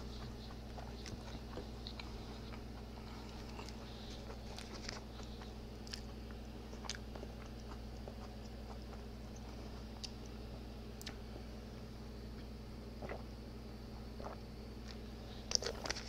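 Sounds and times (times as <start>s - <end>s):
chewing with wet mouth clicks: 0.0s - 10.4s, 11.0s - 11.2s, 14.2s - 16.0s.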